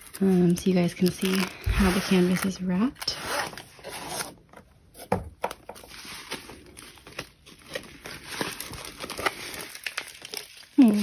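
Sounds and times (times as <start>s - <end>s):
plastic-covered canvas rustling: 0.0s - 11.0s.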